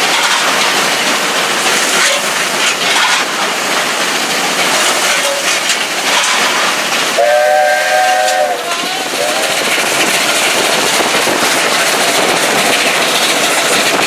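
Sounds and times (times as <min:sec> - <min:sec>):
steam locomotive rushing: 0:00.0 - 0:14.0
knocks and scrapes: 0:04.8 - 0:06.8
steam whistle chord: 0:07.2 - 0:09.4.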